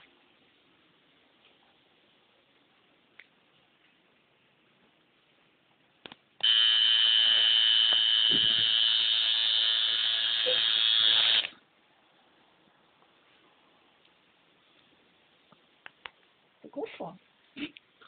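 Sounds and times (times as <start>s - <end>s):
tattoo machine buzzing: 6.4s - 11.5s.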